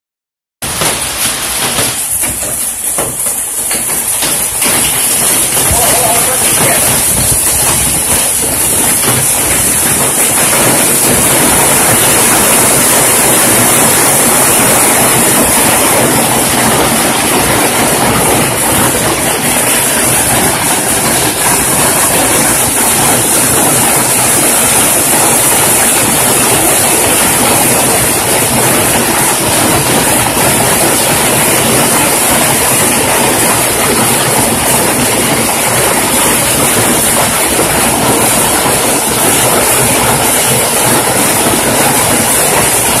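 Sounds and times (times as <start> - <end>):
hail striking pavement: 0.6 - 43.0.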